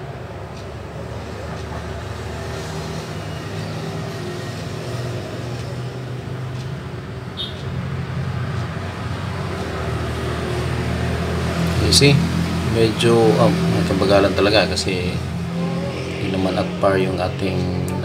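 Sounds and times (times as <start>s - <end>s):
faint tick: 6.5s - 6.7s.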